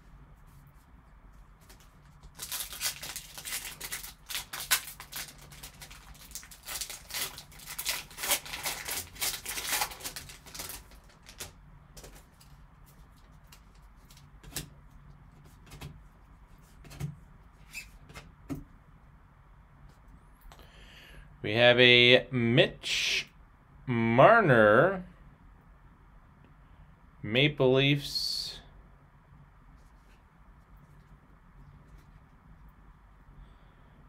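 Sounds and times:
foil wrapper crinkling and tearing: 0:01.6 - 0:14.6.

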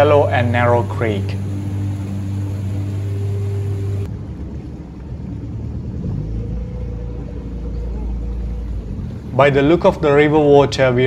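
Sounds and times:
faint steady tone: 0:00.0 - 0:04.1, 0:06.3 - 0:10.4
boat motor running: 0:00.0 - 0:11.0.

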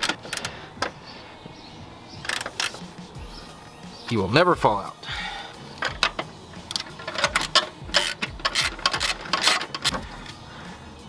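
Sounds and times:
sharp metal clicks: 0:00.0 - 0:00.9, 0:02.2 - 0:02.9, 0:05.8 - 0:10.0
ratchet wrench clicking: 0:05.8 - 0:10.0.

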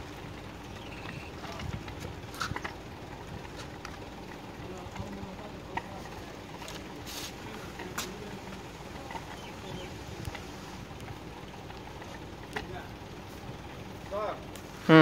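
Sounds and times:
short hiss: 0:07.1 - 0:07.4.

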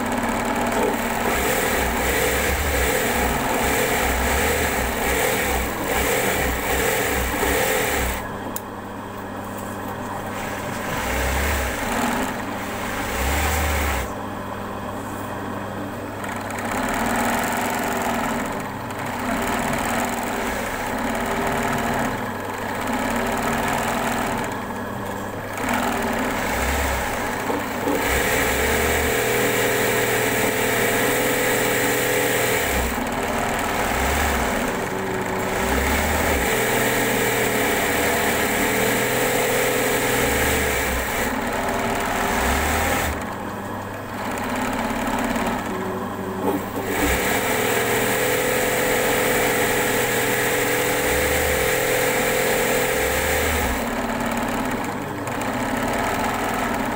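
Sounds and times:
sewing machine running: 0:00.0 - 0:08.6, 0:10.2 - 0:14.2, 0:16.2 - 0:56.9.

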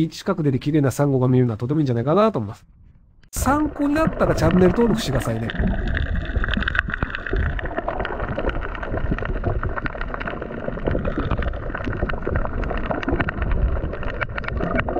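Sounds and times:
crackling clicks underwater: 0:03.2 - 0:14.9
underwater water rush: 0:03.4 - 0:14.9.

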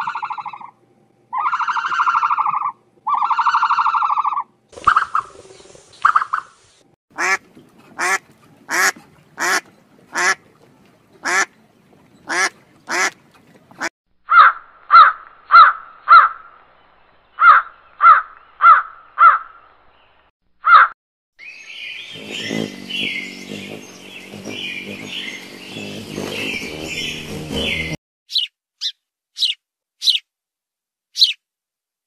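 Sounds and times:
evenly spaced bird calls: 0:00.0 - 0:07.4, 0:11.2 - 0:30.3, 0:31.1 - 0:31.4
duck quacking: 0:07.2 - 0:10.4, 0:11.2 - 0:11.5, 0:12.3 - 0:13.2.

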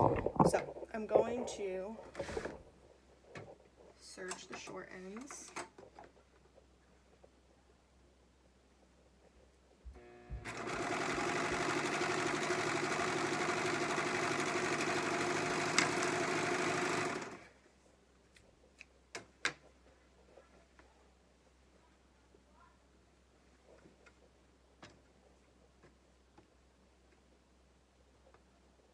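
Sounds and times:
serger sewing machine running: 0:10.0 - 0:17.5.

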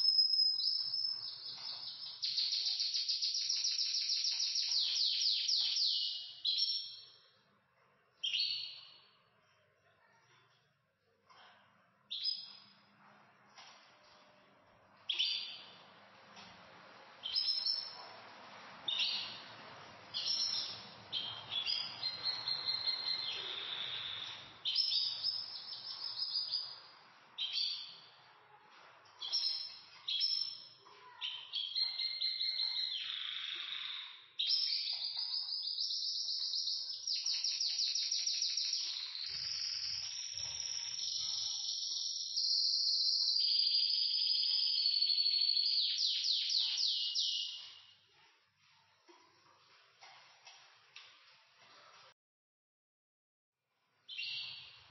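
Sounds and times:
canaries singing: 0:00.0 - 0:07.2, 0:15.0 - 0:28.3, 0:29.1 - 0:48.0, 0:54.1 - 0:54.9.

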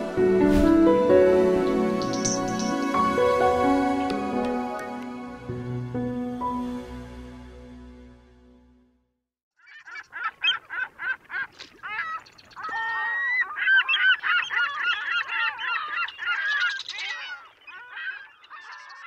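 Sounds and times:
flock of birds calling: 0:01.8 - 0:04.9, 0:09.6 - 0:19.0.

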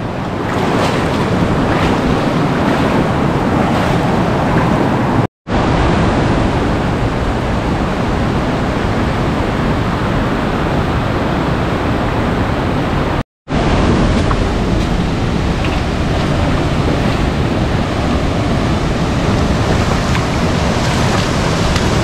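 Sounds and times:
stream water rushing: 0:00.0 - 0:08.4, 0:09.0 - 0:22.0.

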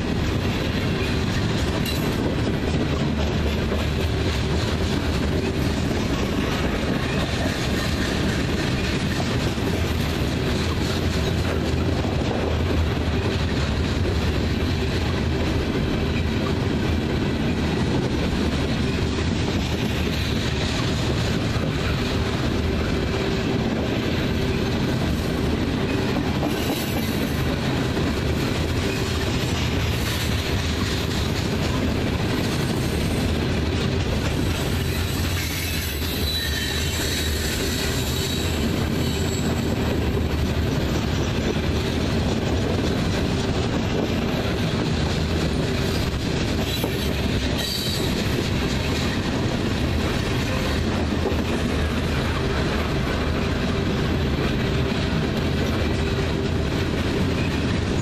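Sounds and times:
train wheels rumbling on rails: 0:00.0 - 0:58.0
faint high wheel squeal: 0:34.7 - 0:39.8, 0:46.7 - 0:48.2.

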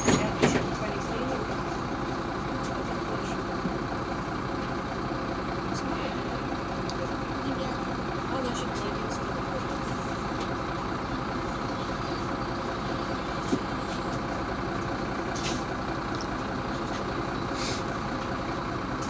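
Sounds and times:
bus diesel engine idling: 0:00.0 - 0:19.0
short air hiss: 0:17.5 - 0:17.9.

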